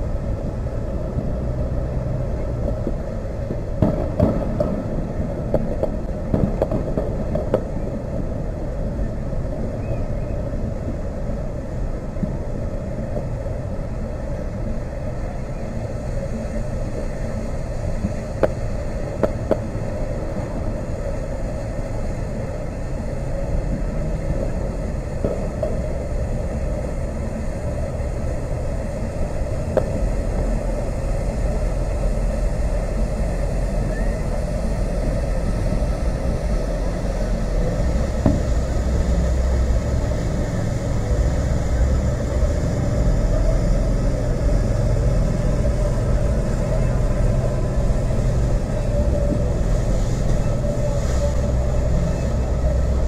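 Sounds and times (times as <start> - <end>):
low rumble: 0.0 - 53.0
distant fireworks popping and banging: 2.6 - 8.4, 18.0 - 19.8, 25.2 - 26.0, 38.1 - 38.7.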